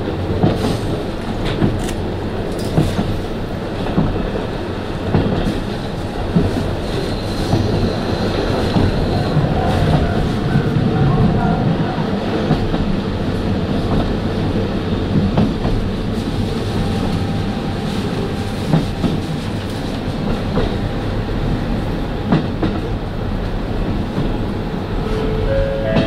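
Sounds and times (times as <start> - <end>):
train wheels on rails: 0.0 - 26.0.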